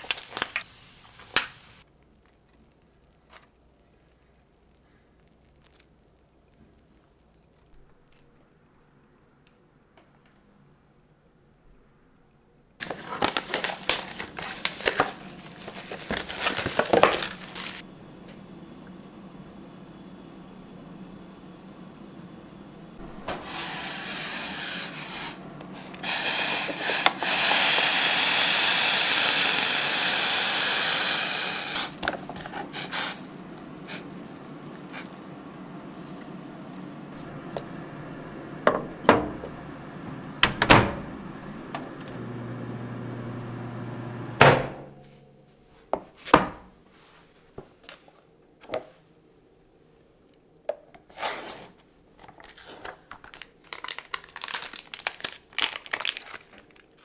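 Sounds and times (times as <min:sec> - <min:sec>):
paper lid rustling: 0:12.8 - 0:17.8
hot water pouring: 0:12.8 - 0:44.2
microwave humming: 0:12.8 - 0:45.0.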